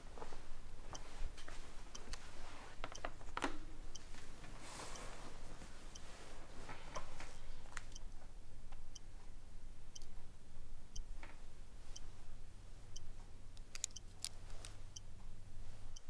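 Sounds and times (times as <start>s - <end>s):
clock ticking: 3.9s - 4.1s, 8.8s - 9.1s
sharp clicks: 13.6s - 14.4s.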